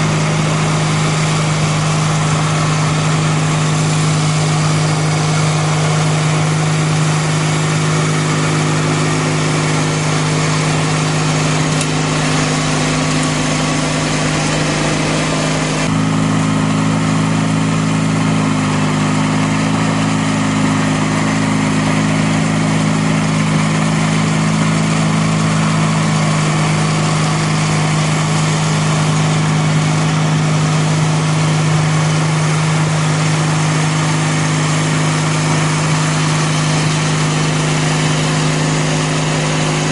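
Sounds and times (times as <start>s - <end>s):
snowblower throwing snow: 0.0s - 39.9s
tractor engine running under load: 0.0s - 39.9s.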